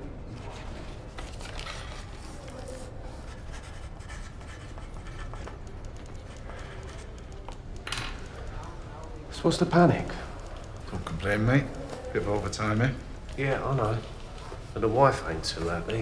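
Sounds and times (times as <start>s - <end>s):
paper rustling: 0.3s - 5.4s
pen scratching on paper: 3.2s - 5.5s.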